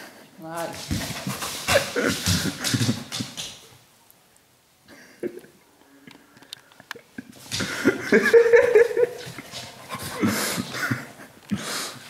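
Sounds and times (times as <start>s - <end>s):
woman laughing: 7.6s - 9.4s, 10.2s - 11.3s.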